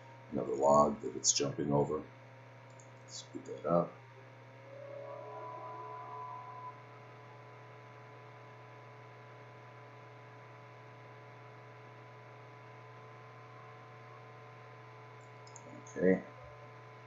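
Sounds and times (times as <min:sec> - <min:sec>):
low electrical hum: 0:00.0 - 0:17.0
thin steady tone: 0:04.6 - 0:07.9.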